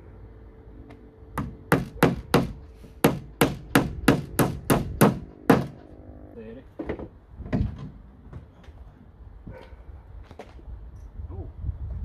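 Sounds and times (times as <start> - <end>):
hammer driving nail into wood: 1.4 - 5.8.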